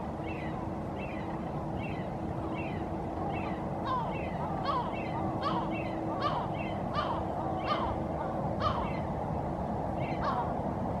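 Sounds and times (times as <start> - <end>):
low hum and rumble: 0.0 - 11.0
gull calling: 1.2 - 9.1, 10.0 - 10.6.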